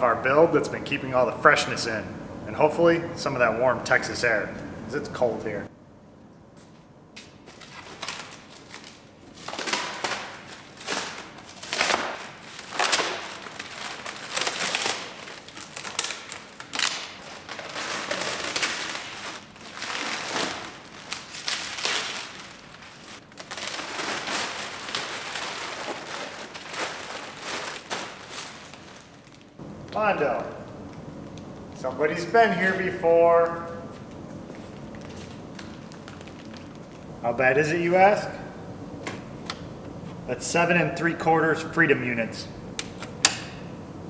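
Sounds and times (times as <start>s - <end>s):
plastic sheeting crinkling: 7.2s - 32.8s, 33.6s - 37.2s.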